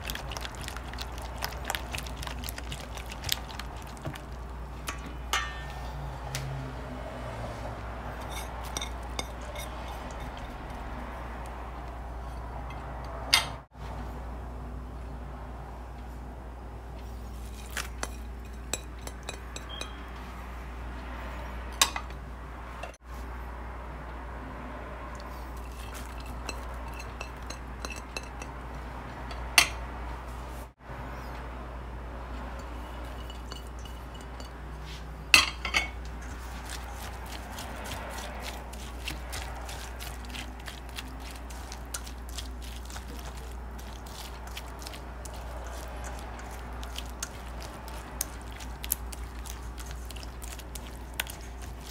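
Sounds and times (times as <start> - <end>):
utensils clinking against metal bowl: 0.0 - 5.9, 8.2 - 10.8, 17.3 - 20.1, 25.6 - 28.6, 32.6 - 51.9
whisk scraping metal bowl: 36.2 - 51.9.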